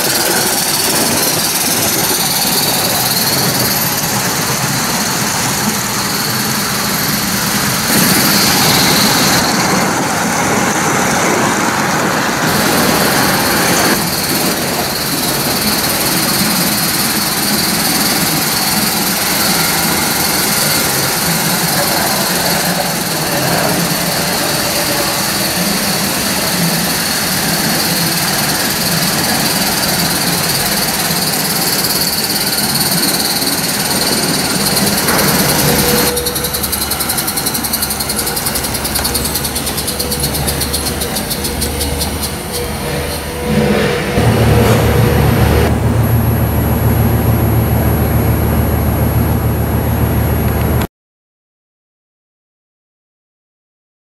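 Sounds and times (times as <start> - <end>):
model train rushing: 0.0 - 50.8
low rumble: 42.9 - 50.8.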